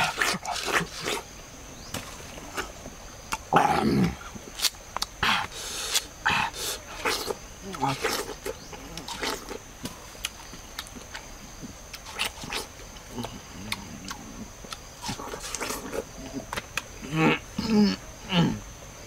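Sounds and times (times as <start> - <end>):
person chewing watermelon: 0.0 - 1.3, 2.4 - 3.6, 4.2 - 17.4.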